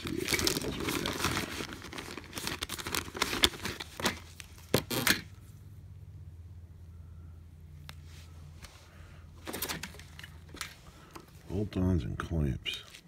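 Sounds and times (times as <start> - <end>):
plastic bag rustling: 0.0 - 5.0
faint low hum: 0.0 - 13.0.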